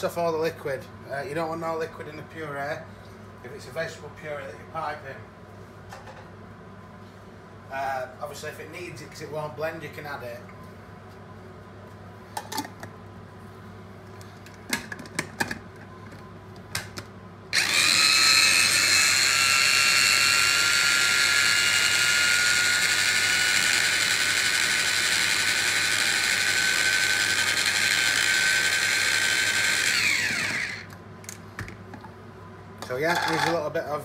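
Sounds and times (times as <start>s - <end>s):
mini chopper whining: 17.6s - 30.9s.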